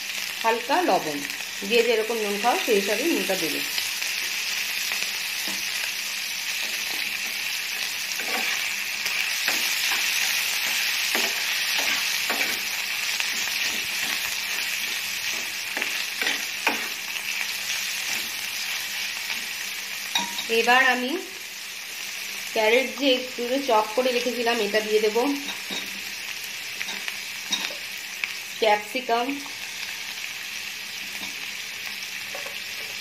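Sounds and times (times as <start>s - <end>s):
food sizzling in a frying pan: 0.0s - 33.0s
metal spatula scraping a pan: 6.6s - 17.0s.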